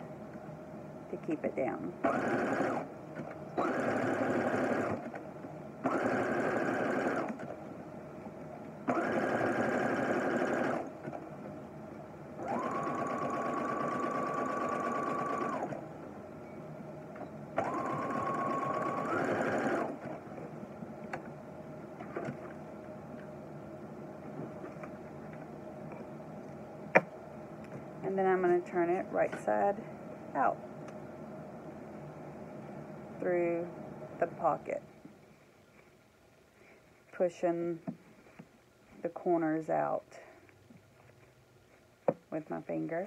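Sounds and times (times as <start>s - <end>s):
electric sewing machine stitching: 2.0s - 5.2s, 5.8s - 7.6s, 8.8s - 11.2s, 12.4s - 15.9s, 17.6s - 20.3s.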